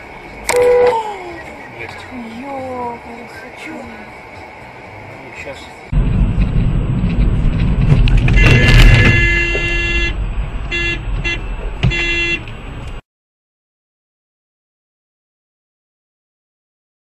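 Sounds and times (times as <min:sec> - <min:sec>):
vehicle rumble on road: 0:00.0 - 0:13.0
car horn: 0:00.4 - 0:01.0, 0:08.2 - 0:12.5.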